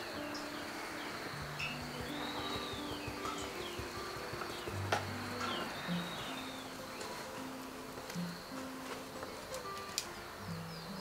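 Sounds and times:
high falling chirps: 0:00.0 - 0:08.8
music of held notes: 0:00.0 - 0:11.0.

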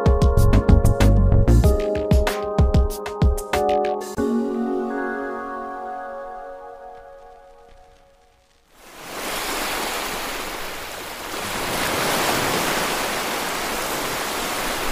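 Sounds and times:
sea waves washing against rocks: 0:08.8 - 0:14.9.

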